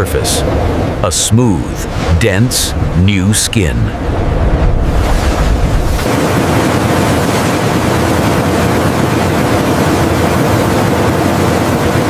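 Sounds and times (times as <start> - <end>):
deep rumble: 0.1 - 11.8
industrial machinery running: 5.8 - 12.0.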